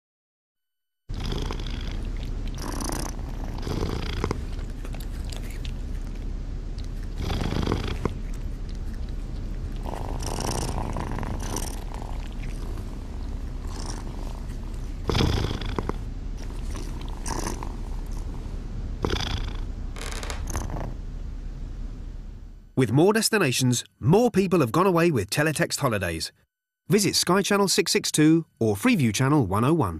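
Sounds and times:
cat purring: 0:01.1 - 0:21.0.

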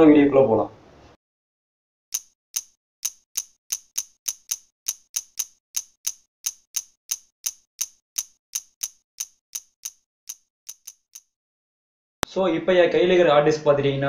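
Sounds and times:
keystroke clicks: 0:02.2 - 0:11.2.

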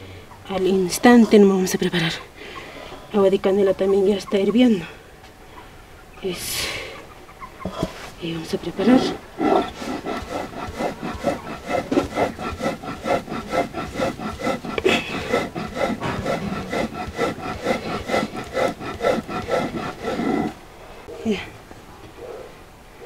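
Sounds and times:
gritty scraping strokes: 0:08.8 - 0:20.6
stone grinding on stone slab: 0:09.4 - 0:20.6.

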